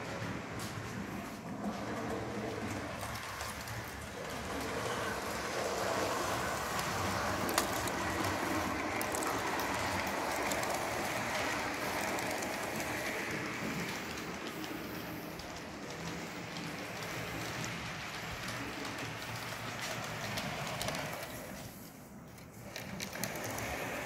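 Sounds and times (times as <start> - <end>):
model train whirring on rails: 0.0 - 24.0.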